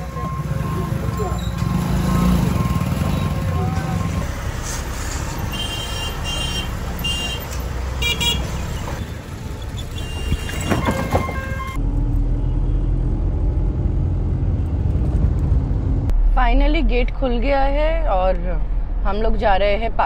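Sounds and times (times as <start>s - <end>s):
street traffic: 0.0s - 20.0s
vehicle horns honking: 5.3s - 11.8s.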